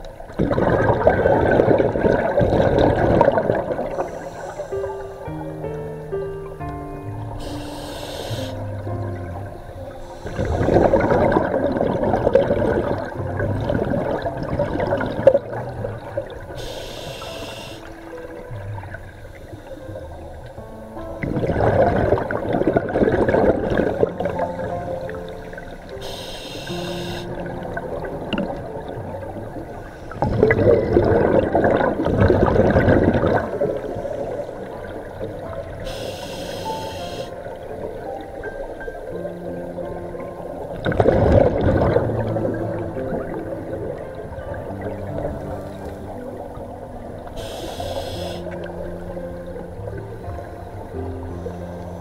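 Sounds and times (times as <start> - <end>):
diver's bubbles gurgling: 0.0 - 5.5, 7.2 - 52.0
regulator breath hiss: 4.0 - 5.2, 7.4 - 8.8, 10.0 - 10.9, 16.6 - 18.0, 26.0 - 27.4, 35.8 - 37.4, 47.4 - 48.6.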